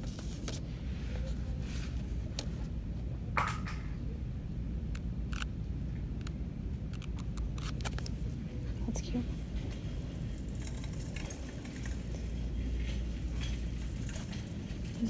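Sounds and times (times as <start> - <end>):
book pages flipping: 0.0 - 0.6, 7.0 - 8.4
low shop hum: 0.0 - 15.0.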